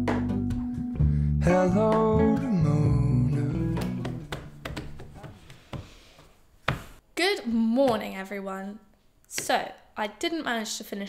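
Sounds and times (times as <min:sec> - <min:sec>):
acoustic guitar: 0:00.0 - 0:04.6
person singing: 0:01.0 - 0:04.5.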